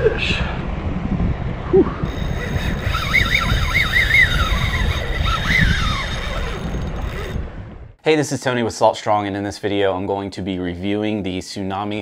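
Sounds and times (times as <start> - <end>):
wind buffeting microphone: 0.0 - 8.0
wavering high whine: 1.6 - 7.8.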